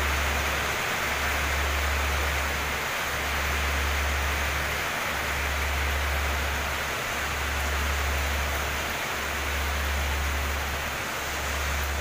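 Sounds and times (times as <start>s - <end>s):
heavy rain pouring: 0.0s - 12.0s.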